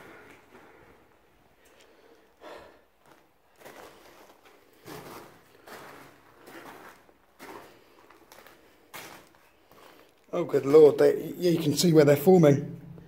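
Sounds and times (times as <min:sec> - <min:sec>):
footsteps on stony floor: 0:03.0 - 0:10.2.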